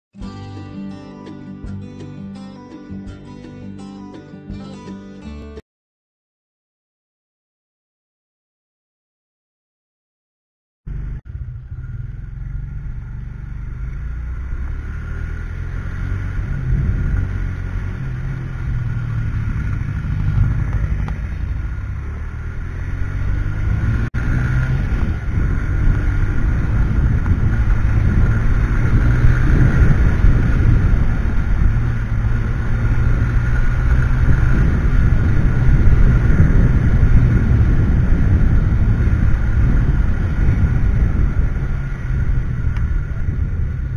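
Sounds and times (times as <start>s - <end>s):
motorcycle engine and road rumble: 10.9s - 43.9s.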